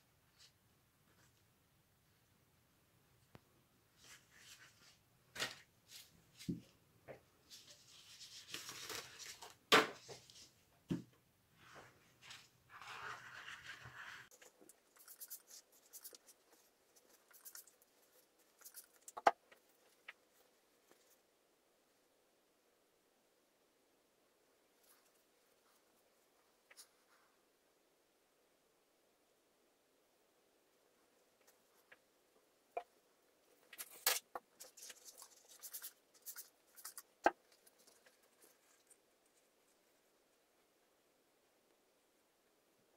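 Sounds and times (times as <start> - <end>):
paper rustling and crinkling: 7.5 - 10.5, 33.6 - 39.0.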